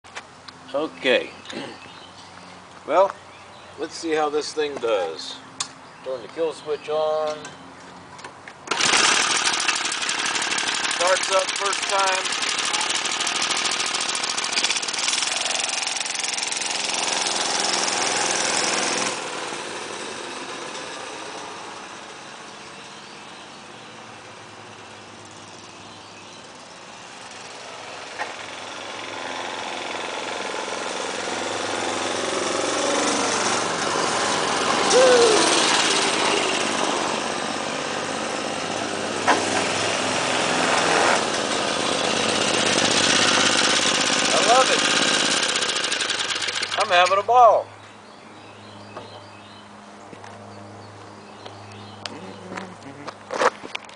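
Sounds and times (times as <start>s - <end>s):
mini-bike engine running: 8.7s - 23.7s, 24.6s - 47.5s.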